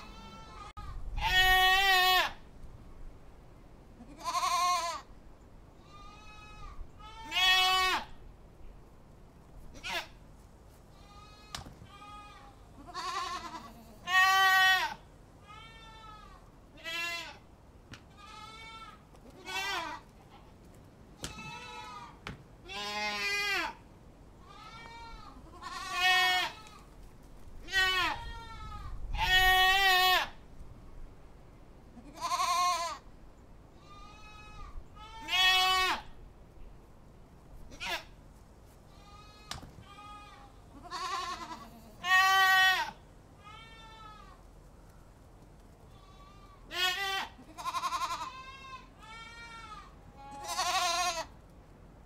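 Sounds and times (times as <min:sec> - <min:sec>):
goats bleating: 0:00.0 - 0:02.4, 0:04.0 - 0:05.1, 0:05.8 - 0:08.1, 0:09.7 - 0:10.2, 0:10.9 - 0:17.4, 0:18.1 - 0:20.3, 0:21.2 - 0:23.8, 0:24.4 - 0:26.9, 0:27.6 - 0:30.4, 0:32.0 - 0:33.0, 0:33.8 - 0:36.1, 0:37.7 - 0:38.1, 0:38.9 - 0:44.4, 0:45.9 - 0:51.3.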